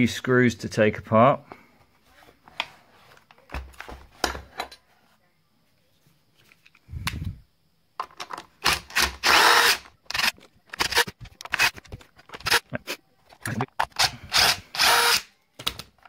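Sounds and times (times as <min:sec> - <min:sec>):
screwdriver rasping and clicking: 0:08.6 - 0:12.6.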